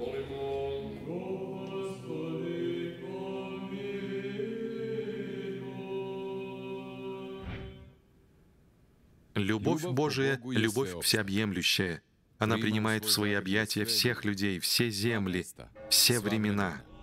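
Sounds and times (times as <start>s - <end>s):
voices chanting long held notes: 0.0s - 7.9s.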